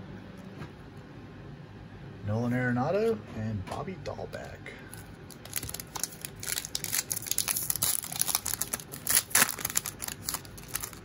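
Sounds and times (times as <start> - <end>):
plastic wrapper crinkling: 4.9 - 11.0.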